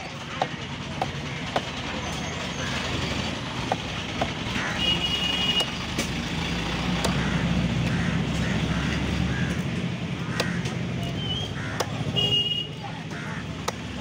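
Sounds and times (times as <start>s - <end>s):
cleaver chopping on wooden block: 0.3s - 1.8s, 3.6s - 4.4s, 5.5s - 6.2s, 6.8s - 8.0s, 10.3s - 12.2s, 13.5s - 14.0s.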